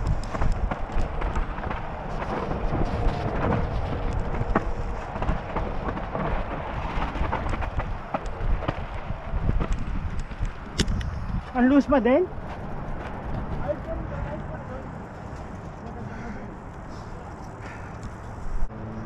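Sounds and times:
bike knocking and rattling on rock: 0.0 - 11.5
bike tyre noise: 0.0 - 18.7
wind rumbling on microphone: 0.0 - 19.0.

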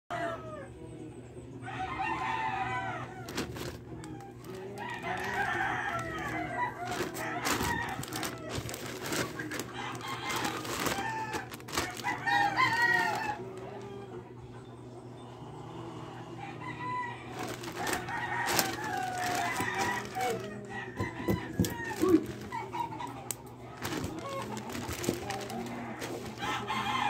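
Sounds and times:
rooster crowing: 0.1 - 0.8, 1.6 - 14.3, 15.8 - 27.0
plastic bag crinkling: 3.3 - 13.9, 17.3 - 22.8, 23.7 - 27.0.

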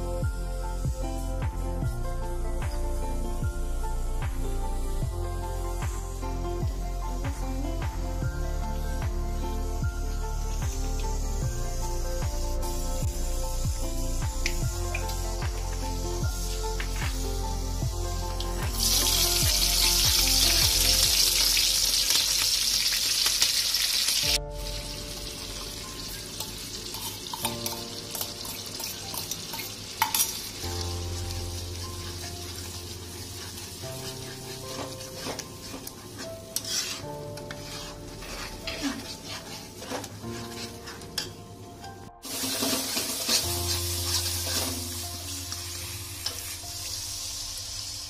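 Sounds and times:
food sizzling in hot oil: 2.9 - 7.7, 9.6 - 41.4, 42.2 - 48.0
spatula scraping pan: 32.0 - 41.4, 42.2 - 45.0.

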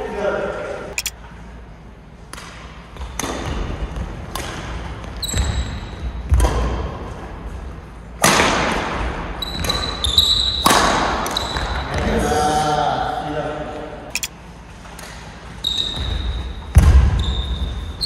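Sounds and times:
sneaker squeaks on court: 5.2 - 6.1, 9.4 - 10.7, 11.3 - 12.0, 15.6 - 18.0.

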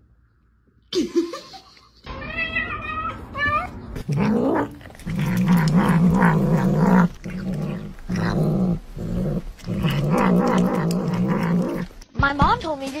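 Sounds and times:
kitten growling: 4.0 - 12.0.

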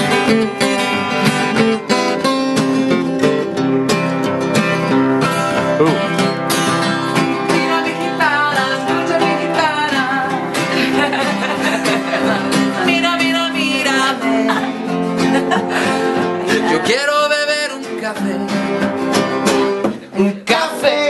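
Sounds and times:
acoustic guitar strumming: 0.0 - 21.0
person singing: 7.3 - 18.8, 19.9 - 21.0.

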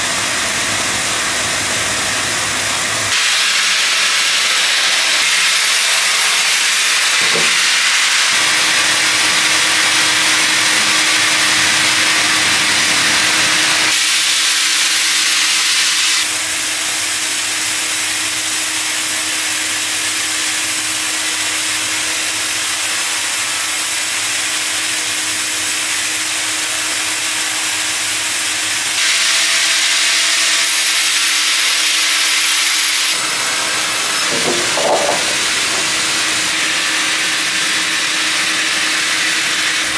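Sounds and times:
band saw cutting log: 0.0 - 39.9
machine hum: 8.3 - 13.9, 33.1 - 39.3.

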